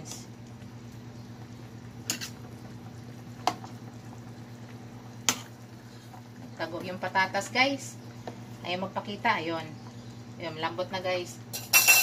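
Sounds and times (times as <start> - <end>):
soup simmering: 0.0 - 8.7
steady low hum: 0.0 - 12.0
utensils clinking against metal pot: 11.5 - 12.0.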